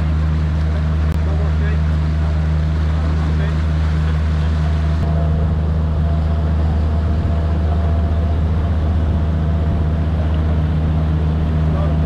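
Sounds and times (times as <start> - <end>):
motorboat engine droning: 0.0 - 12.0.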